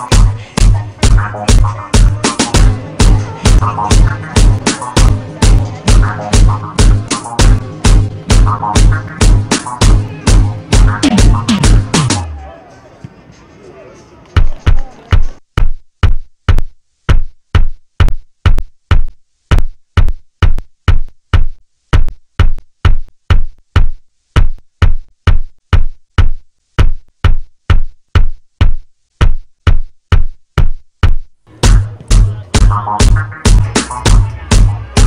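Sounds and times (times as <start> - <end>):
kick drum beating: 14.4 - 34.7.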